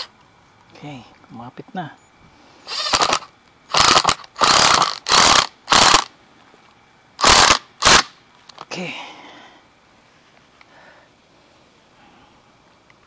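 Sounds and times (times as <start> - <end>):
impact driver driving screw: 2.8 - 6.1, 7.2 - 8.1.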